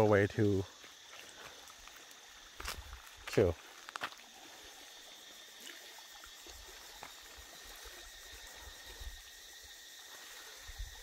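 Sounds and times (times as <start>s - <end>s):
sea water lapping on pebbles: 0.8s - 8.0s.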